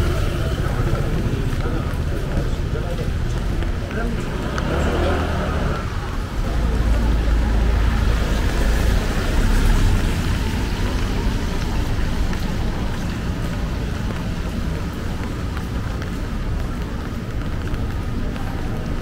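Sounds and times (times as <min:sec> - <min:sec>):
vehicle rumbling past: 0:04.0 - 0:13.9.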